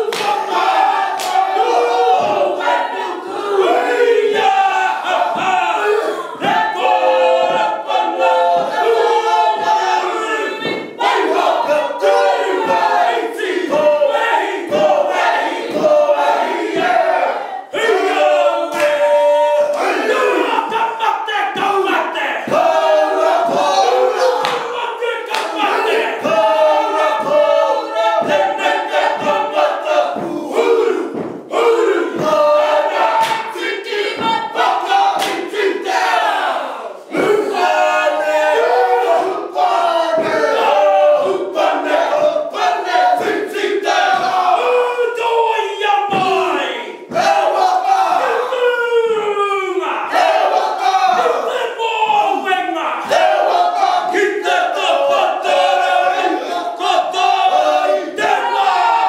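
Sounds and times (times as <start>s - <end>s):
rhythmic thud: 0.0s - 48.2s
group chanting in unison: 0.0s - 59.0s.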